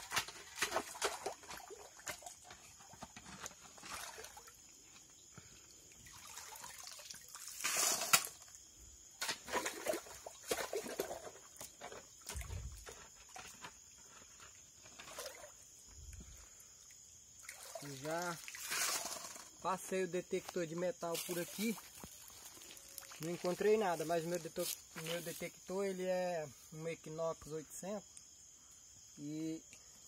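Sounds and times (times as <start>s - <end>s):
water sloshing and splashing: 0.0s - 8.6s, 9.2s - 16.4s, 17.0s - 19.6s, 21.1s - 25.4s
shovel scraping on stones: 18.6s - 19.5s.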